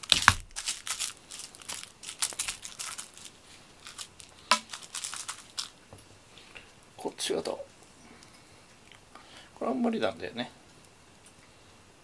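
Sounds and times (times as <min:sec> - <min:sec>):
toys rustling on fabric: 0:00.0 - 0:05.8.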